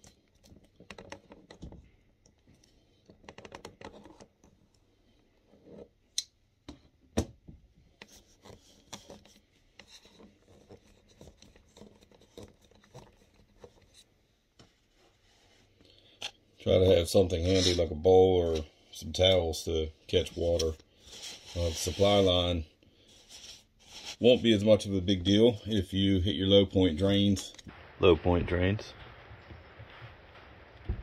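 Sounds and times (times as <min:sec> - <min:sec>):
hands and tool scraping: 0:17.2 - 0:18.7, 0:20.1 - 0:24.8.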